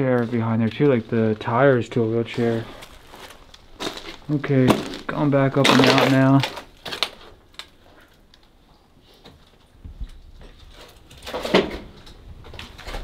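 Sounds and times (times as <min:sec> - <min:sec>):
footsteps on debris: 0:00.0 - 0:08.1.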